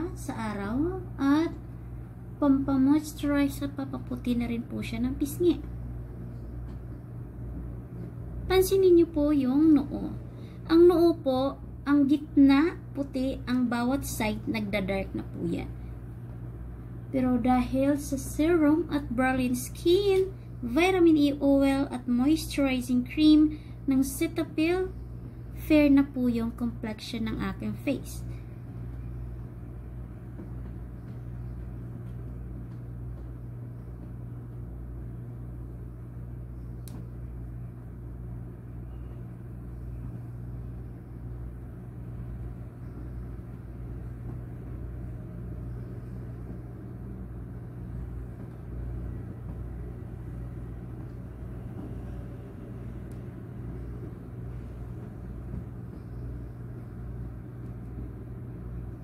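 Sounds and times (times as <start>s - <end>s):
steady low hum: 0.0s - 59.0s
click: 36.8s - 37.2s.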